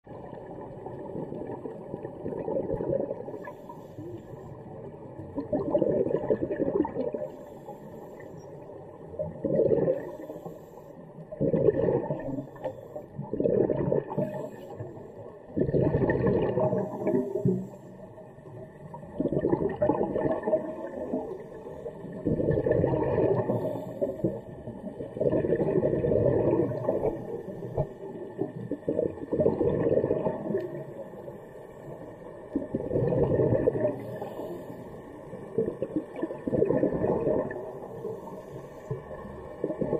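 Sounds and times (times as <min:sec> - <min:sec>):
exhaled bubbles gurgling: 0:00.0 - 0:39.9
diver breathing through regulator: 0:34.0 - 0:35.0.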